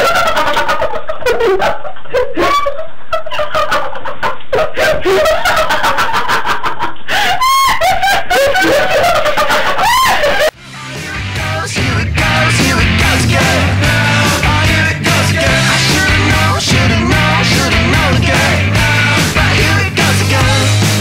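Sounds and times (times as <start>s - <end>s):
young people laughing: 0.0s - 10.6s.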